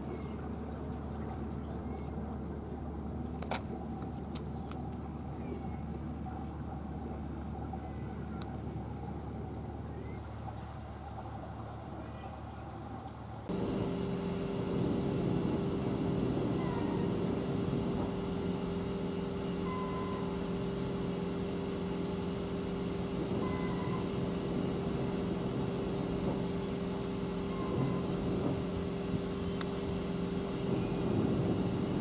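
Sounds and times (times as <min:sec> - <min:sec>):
low background rumble: 0:00.0 - 0:32.0
ship diesel engine running: 0:00.2 - 0:32.0.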